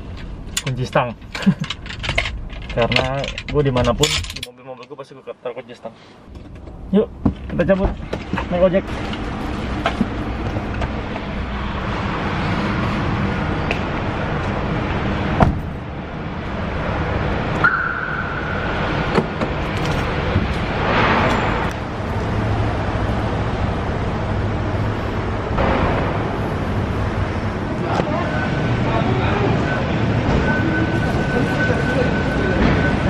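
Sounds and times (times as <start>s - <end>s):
car park background noise: 0.0s - 33.0s
low hum: 8.9s - 31.4s
car door shutting: 15.4s - 15.8s
car lock beep: 17.6s - 18.7s.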